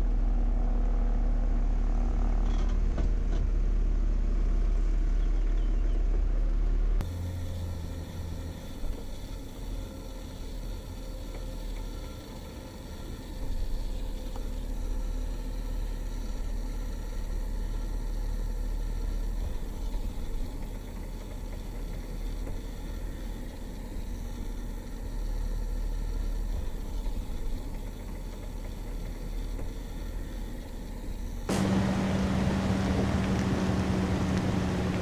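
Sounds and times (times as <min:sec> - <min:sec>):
car cabin engine and tyre rumble: 0:00.0 - 0:35.0.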